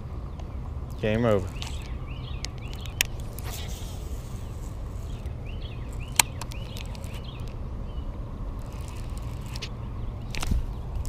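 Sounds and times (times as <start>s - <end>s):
steady low rumble: 0.0s - 11.0s
faint bird chirps: 0.3s - 11.0s
sharp clicks: 0.4s - 3.8s, 5.1s - 7.6s, 8.6s - 11.0s.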